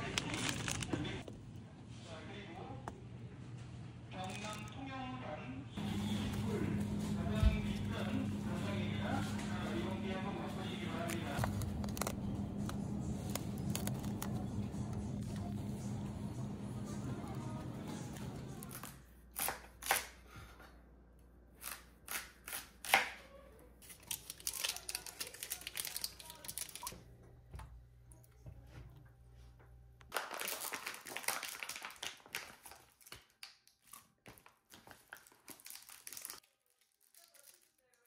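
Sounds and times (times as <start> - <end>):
plastic packaging crinkling: 0.0 - 1.2, 5.8 - 15.3, 23.8 - 27.0, 30.1 - 38.0
low steady hum: 5.5 - 19.2.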